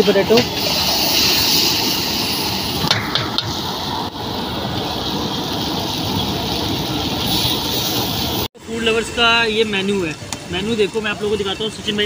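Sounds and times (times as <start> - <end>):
potatoes sizzling in a wok: 0.0 - 8.5.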